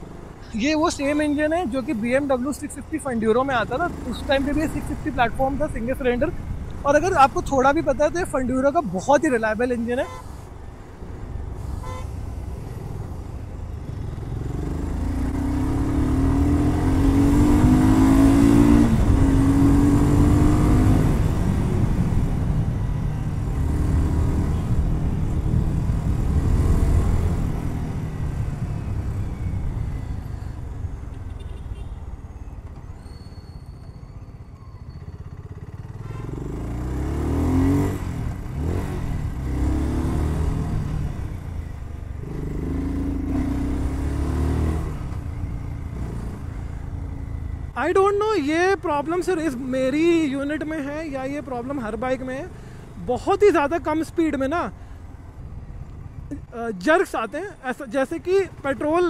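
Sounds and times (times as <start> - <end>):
motorcycle engine revving: 13.9 - 22.0, 35.3 - 46.6.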